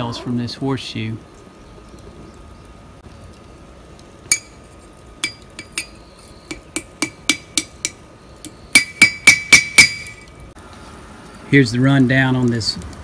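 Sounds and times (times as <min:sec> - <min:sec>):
hammer striking horseshoe on anvil: 0:04.3 - 0:04.6, 0:05.2 - 0:08.0, 0:08.7 - 0:10.3.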